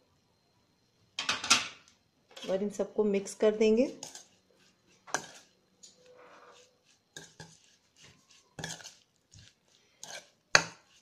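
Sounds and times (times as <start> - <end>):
wet squishing and scraping: 4.0 - 11.0.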